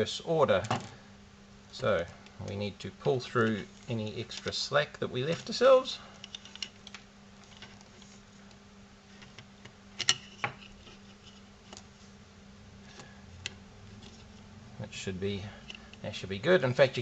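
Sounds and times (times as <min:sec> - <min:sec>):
faint handling noises: 0:01.7 - 0:12.2, 0:12.8 - 0:14.5.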